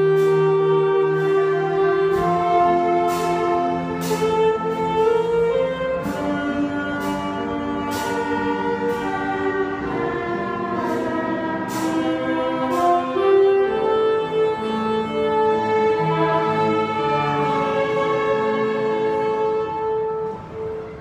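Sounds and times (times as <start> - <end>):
string orchestra playing slowly: 0.0 - 21.0.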